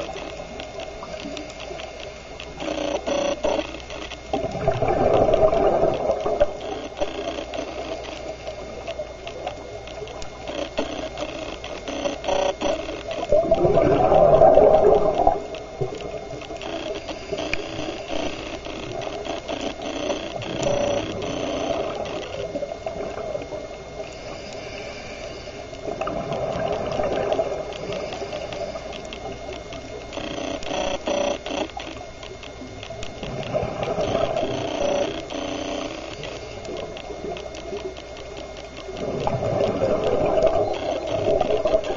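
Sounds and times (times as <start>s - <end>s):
steady fine crackling: 0.0s - 41.9s
diver exhaling regulator bubbles: 4.3s - 6.6s, 13.3s - 16.0s, 25.8s - 28.8s, 33.2s - 34.6s, 39.0s - 41.9s.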